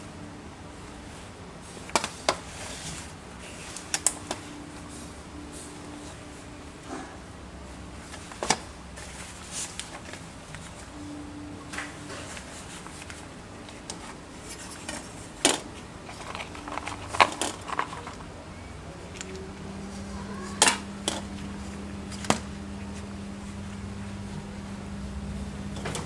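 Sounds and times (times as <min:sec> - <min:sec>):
plastic containers clicking: 0:15.4 - 0:18.3.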